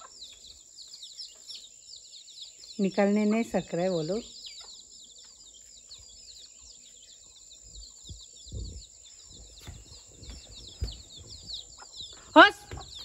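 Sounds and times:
chicks peeping: 0.0s - 13.0s
soft low thumps: 7.7s - 13.0s.

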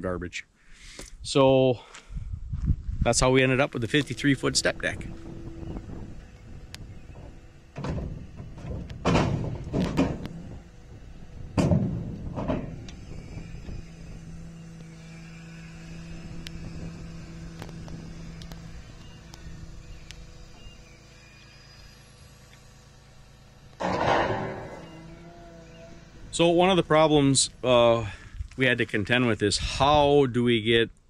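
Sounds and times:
steady low hum: 0.0s - 30.2s
sharp knocks or slams: 7.8s - 10.2s, 11.6s - 12.8s, 23.8s - 25.1s.

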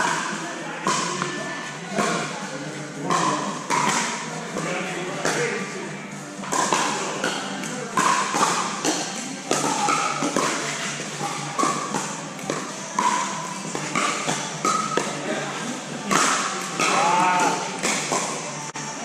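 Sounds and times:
paddles hitting plastic ball: 3.1s - 5.5s, 6.5s - 15.2s, 16.0s - 18.4s.

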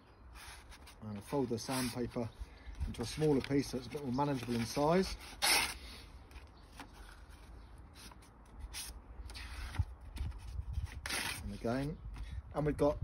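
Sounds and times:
sandpaper rustling: 0.3s - 2.3s, 2.9s - 6.0s, 6.8s - 11.9s.

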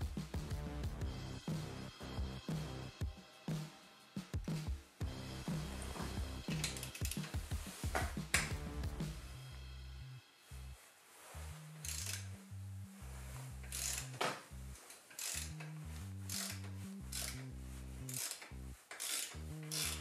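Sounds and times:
background music with bass line: 0.0s - 14.8s, 15.4s - 20.0s
ratchet wrench clicking: 6.5s - 7.4s, 11.8s - 12.4s, 13.6s - 20.0s.

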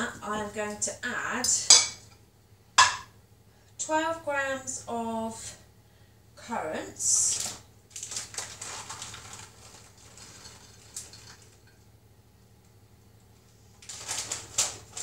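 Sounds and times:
plastic packet rustling: 7.3s - 11.7s, 13.7s - 15.0s
packet crinkling: 7.4s - 11.6s, 13.8s - 15.0s.

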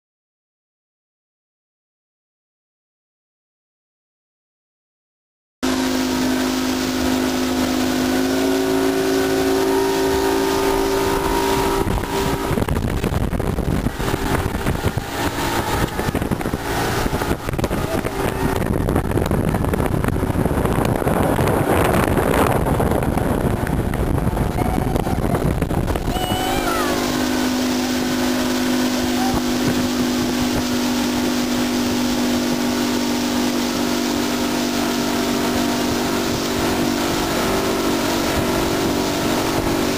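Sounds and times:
motorboat engine humming: 5.6s - 39.9s
loud rushing noise: 8.3s - 28.9s.

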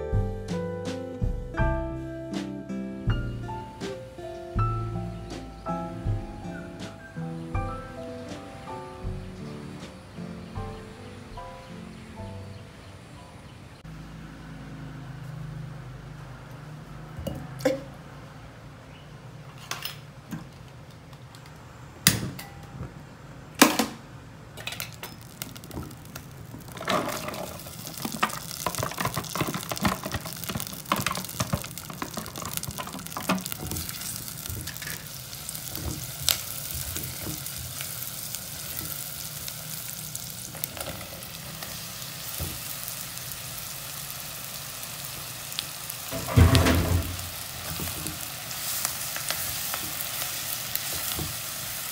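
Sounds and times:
food sizzling and crackling in pot: 24.6s - 51.9s
spatula stirring: 26.6s - 35.2s.

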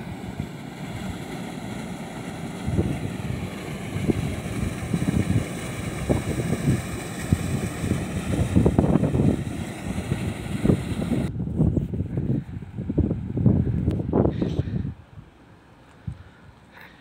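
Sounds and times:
water rushing down a channel: 0.0s - 11.3s
wind buffeting microphone: 0.0s - 15.4s.

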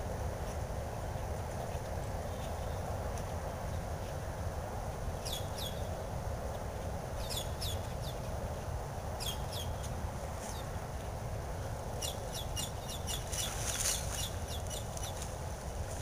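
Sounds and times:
background hiss and rumble: 0.0s - 16.0s
bird chirping: 5.2s - 5.9s, 7.2s - 8.3s, 9.2s - 10.7s, 12.0s - 15.3s.

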